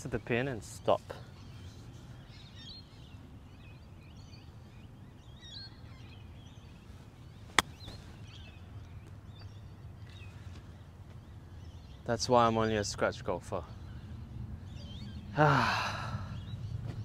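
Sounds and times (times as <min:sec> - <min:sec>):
birds chirping: 0:00.0 - 0:17.0
golf club striking ball: 0:07.6 - 0:07.9
low steady rumble: 0:13.4 - 0:17.0.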